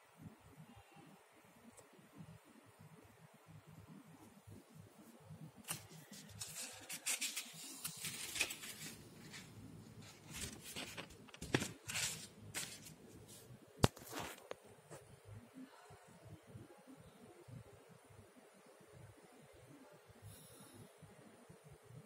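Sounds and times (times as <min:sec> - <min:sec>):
sharp paper snap: 0:05.6 - 0:09.0
book pages turning: 0:05.6 - 0:14.5
paper rustling and crackling: 0:05.6 - 0:14.5.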